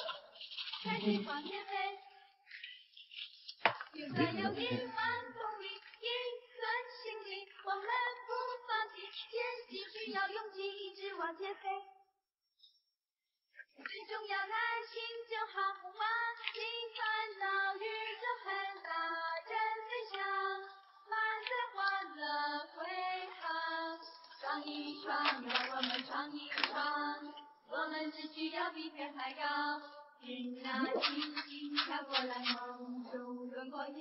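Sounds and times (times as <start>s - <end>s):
high voice singing: 0.0s - 1.8s, 4.0s - 6.2s, 30.6s - 33.3s.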